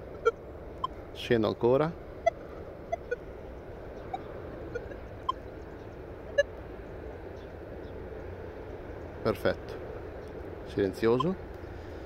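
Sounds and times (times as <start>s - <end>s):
metal detector beeps: 2.2s - 3.2s, 4.1s - 5.4s.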